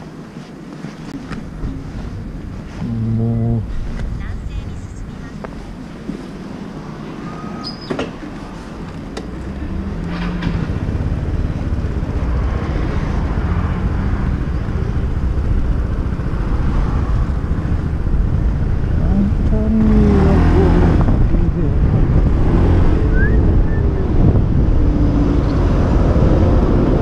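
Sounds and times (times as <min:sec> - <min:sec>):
wind on microphone: 0:10.7 - 0:27.0.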